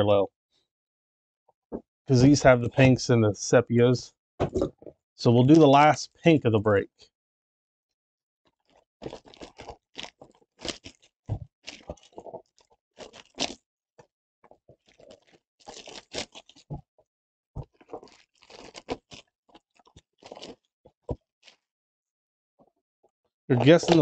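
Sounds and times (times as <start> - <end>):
plastic wrap crinkling and tearing: 8.7 - 13.6, 14.8 - 16.8, 17.6 - 20.7.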